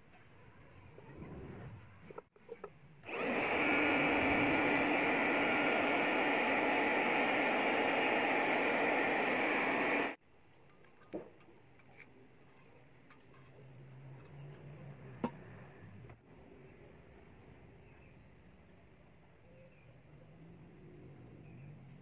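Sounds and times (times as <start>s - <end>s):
hot air gun blowing: 3.1s - 10.2s.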